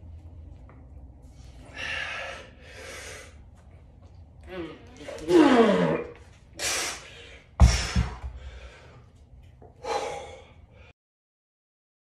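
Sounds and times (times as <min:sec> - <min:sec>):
man grunting: 0:04.5 - 0:06.1
kettlebell thudding on rubber floor: 0:07.6 - 0:08.5.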